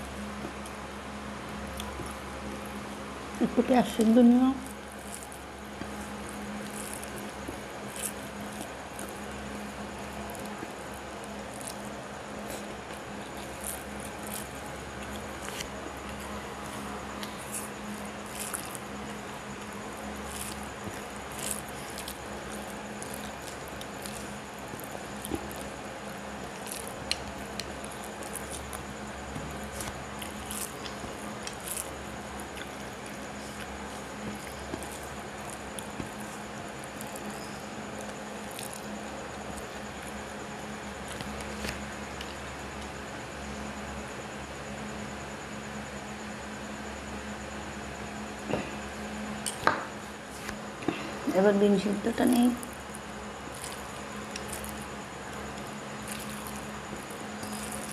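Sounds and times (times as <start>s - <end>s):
steady hum: 0.0s - 57.9s
chewing with wet clicks: 1.7s - 2.2s, 4.0s - 9.4s, 10.0s - 40.3s, 40.9s - 42.9s, 52.6s - 57.9s
fingers squishing rice: 1.7s - 43.0s, 52.3s - 57.9s.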